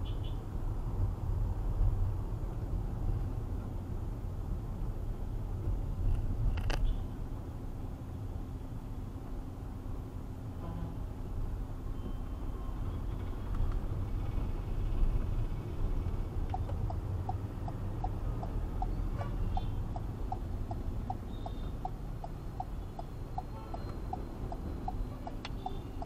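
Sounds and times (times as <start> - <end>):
car driving low rumble: 0.5 - 26.0
regular ticking: 16.1 - 26.0.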